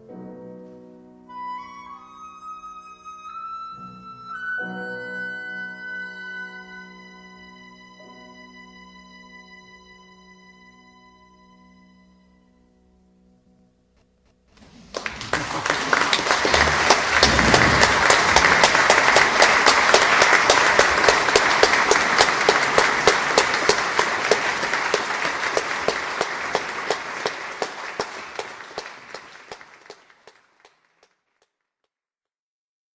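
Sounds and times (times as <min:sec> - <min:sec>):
audience applauding: 0:14.6 - 0:31.2.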